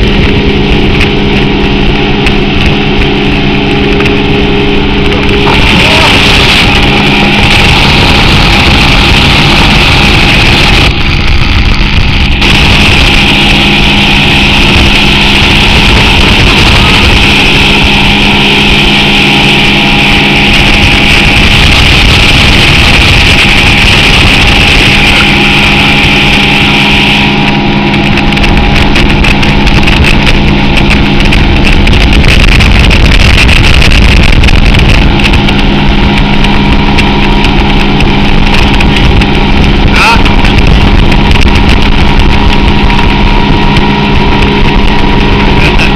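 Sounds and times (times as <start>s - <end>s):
motorboat engine running: 0.0s - 45.9s.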